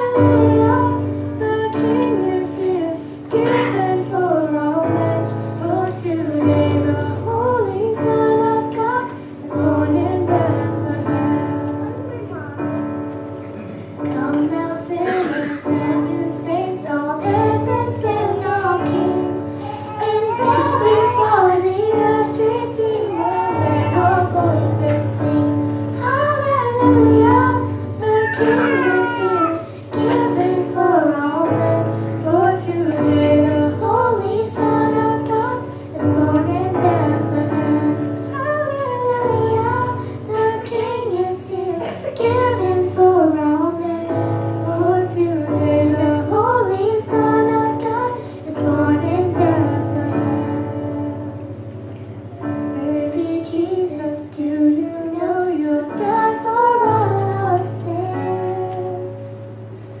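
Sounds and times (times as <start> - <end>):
girl and woman singing: 0.0 - 12.6, 14.0 - 51.5, 52.5 - 59.6
instrumental accompaniment: 6.5 - 45.0.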